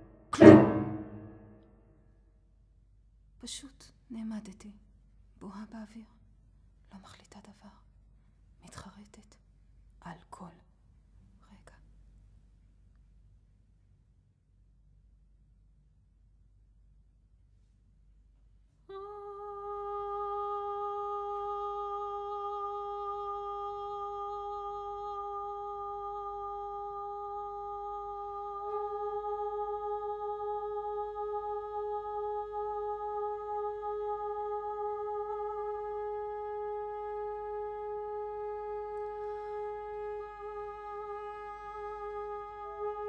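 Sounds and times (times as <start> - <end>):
long held musical note: 0.0 - 1.6.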